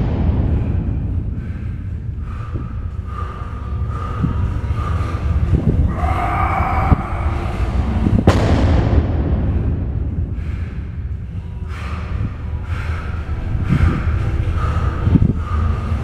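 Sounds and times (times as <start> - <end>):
short forceful breaths: 0.4 - 6.2, 9.5 - 16.0.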